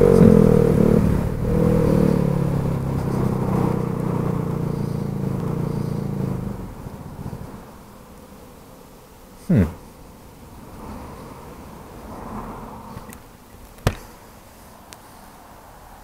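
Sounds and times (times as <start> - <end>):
scooter engine faltering: 0.0 - 8.1.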